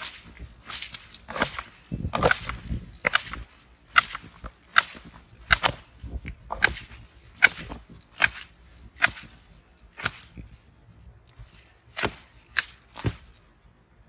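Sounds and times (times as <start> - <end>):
garden cutters snapping shut: 0.0 - 9.3.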